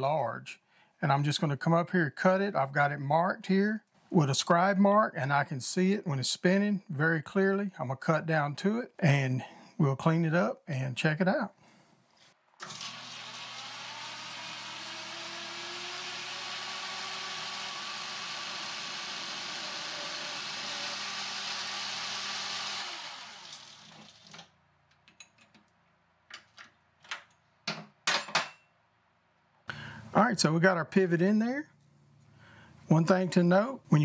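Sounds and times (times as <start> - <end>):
metal lathe running: 12.7 - 24.1
metal parts clicking and knocking: 24.9 - 25.7.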